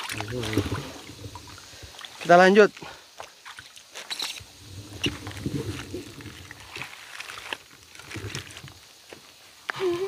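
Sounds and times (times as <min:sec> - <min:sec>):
splashing in muddy water: 0:00.0 - 0:08.9
rustling grass: 0:03.9 - 0:09.7.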